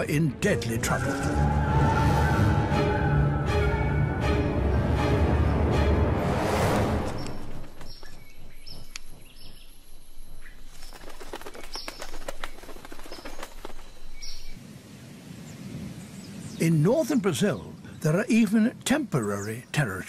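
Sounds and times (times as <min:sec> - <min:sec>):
hummingbird wings fluttering: 0:06.7 - 0:14.6.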